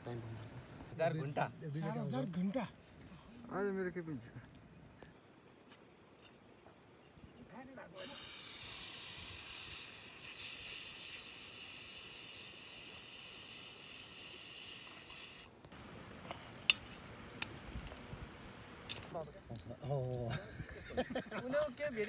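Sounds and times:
pressure cooker hissing steam: 8.0 - 18.9.

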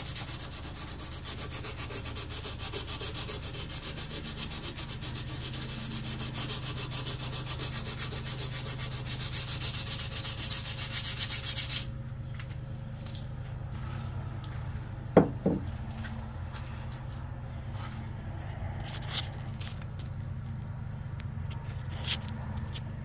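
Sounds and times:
sandpaper rubbing on steel blade: 0.0 - 11.9.

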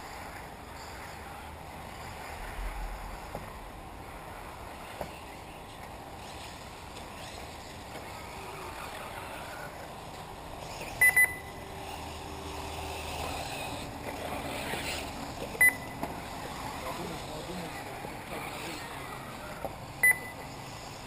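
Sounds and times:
electric model cars on track: 0.0 - 21.0
short electronic beeps: 11.0 - 11.6, 15.6 - 16.0, 20.0 - 20.5.

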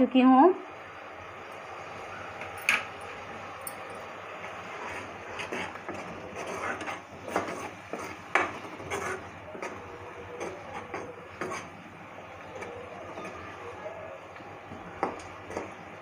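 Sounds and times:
masala frying hiss: 0.0 - 16.0
spoon scraping and knocking pan: 4.5 - 9.8, 10.4 - 11.8, 15.0 - 15.8.

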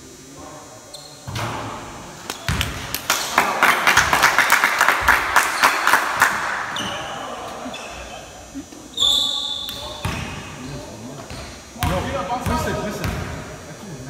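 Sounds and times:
crowd cheering: 3.0 - 7.7.

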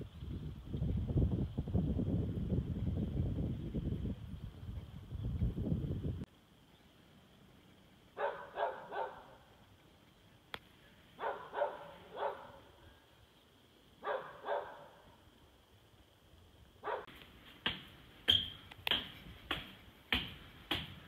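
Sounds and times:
dog barking: 8.2 - 9.4, 11.2 - 12.7, 14.0 - 15.0, 16.8 - 17.1.

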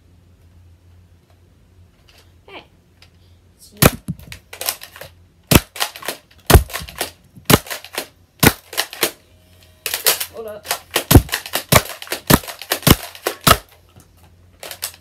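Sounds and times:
blaster mechanism clicks and rattles: 3.8 - 9.2, 9.8 - 14.0, 14.6 - 15.0
toy blaster firing snaps: 3.8 - 9.2, 9.8 - 13.8, 14.6 - 15.0.

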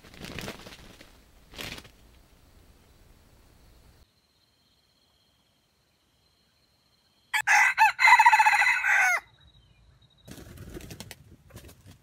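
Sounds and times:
rooster crowing: 7.3 - 9.3.

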